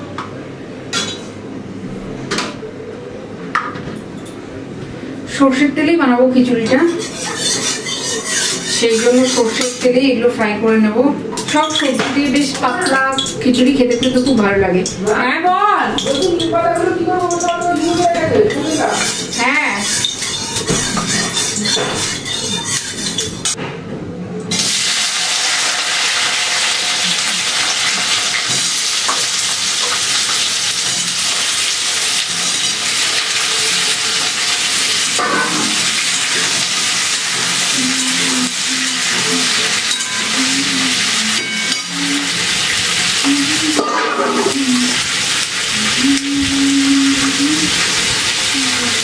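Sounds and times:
metal spatula stirring: 0:06.6 - 0:10.1, 0:11.4 - 0:15.0, 0:15.9 - 0:23.6, 0:27.9 - 0:48.2
vegetables sizzling in oil: 0:24.5 - 0:49.0.

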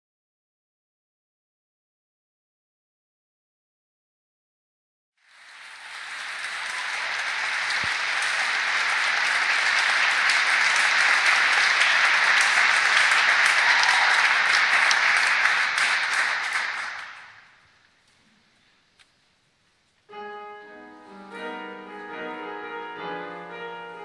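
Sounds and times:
audience applauding: 0:05.2 - 0:17.6.

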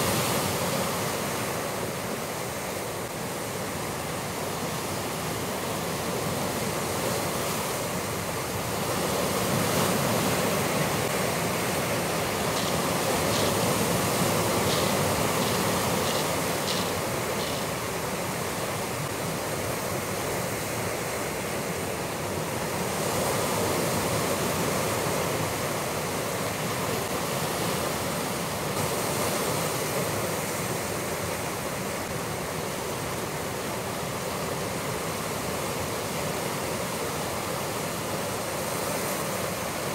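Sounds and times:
surf breaking against rocks: 0:11.0 - 0:19.1
faint high ticks: 0:14.6 - 0:17.8.

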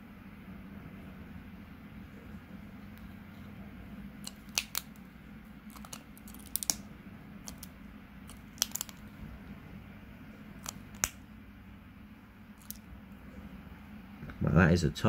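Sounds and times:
lizard biting snail shell clicks: 0:04.2 - 0:05.0, 0:05.7 - 0:06.8, 0:07.5 - 0:07.7, 0:08.3 - 0:09.0, 0:10.6 - 0:11.2, 0:12.6 - 0:12.8.

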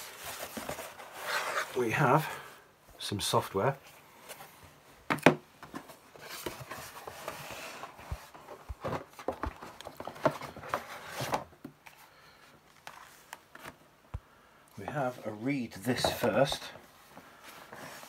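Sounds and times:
rustling paper and cardboard: 0:00.0 - 0:02.5, 0:05.7 - 0:13.8, 0:14.8 - 0:18.0.

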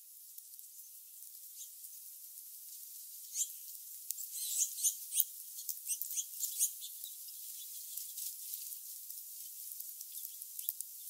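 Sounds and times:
steady high hiss: 0:00.0 - 0:11.0
songbirds chirping: 0:03.0 - 0:11.0.

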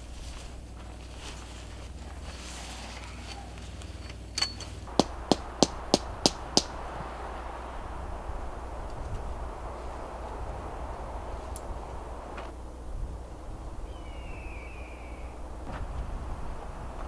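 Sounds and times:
hammer striking tent stake: 0:04.4 - 0:06.7.

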